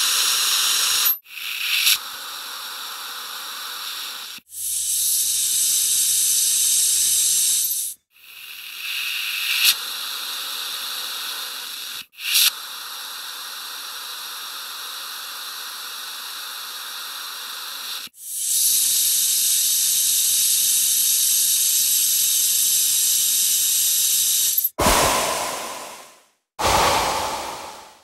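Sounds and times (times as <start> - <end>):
compressed air hissing: 0.0 - 7.9, 8.8 - 18.6, 24.8 - 28.0.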